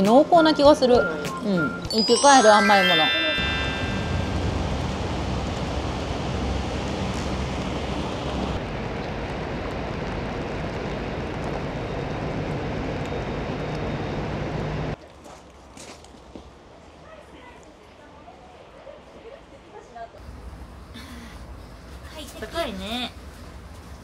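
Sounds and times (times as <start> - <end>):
steady rain: 4.0 - 11.6.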